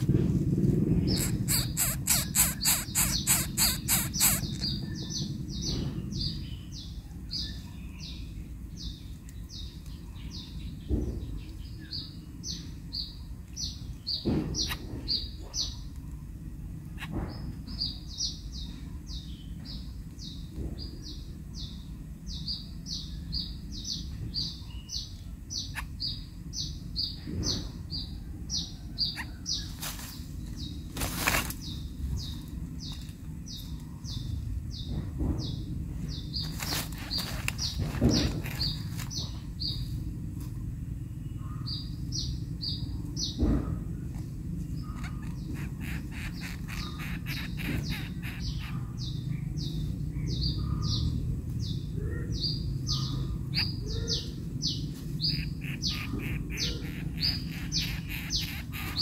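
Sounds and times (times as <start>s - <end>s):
low rumble: 0.0s - 2.1s.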